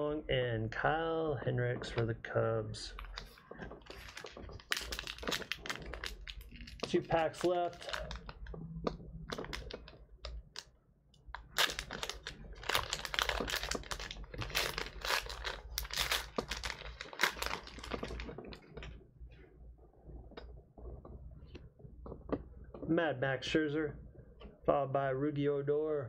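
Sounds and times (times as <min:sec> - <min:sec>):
wrapper crinkling and tearing: 0:03.0 - 0:08.6, 0:09.2 - 0:10.7, 0:11.3 - 0:18.9.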